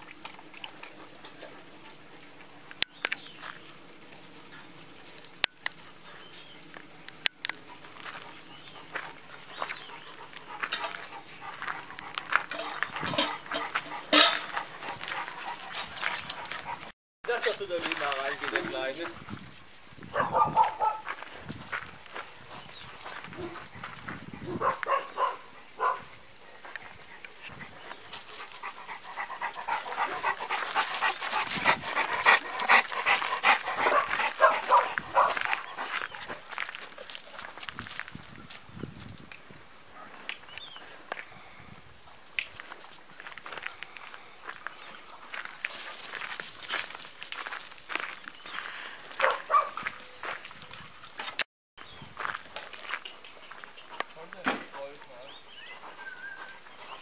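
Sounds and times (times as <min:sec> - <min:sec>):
paws scuffling on gravel: 0:00.8 - 0:57.0
dog panting: 0:08.6 - 0:16.9, 0:26.8 - 0:36.6, 0:55.6 - 0:57.0
metal bowl clinking and knocking: 0:13.2 - 0:14.5.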